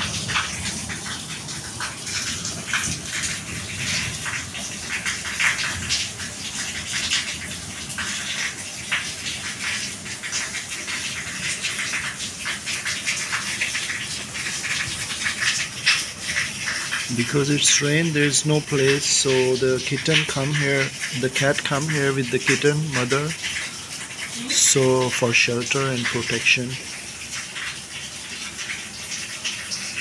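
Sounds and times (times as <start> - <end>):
raindrops splashing close by: 0.0 - 30.0
heavy rain hissing: 17.1 - 26.7.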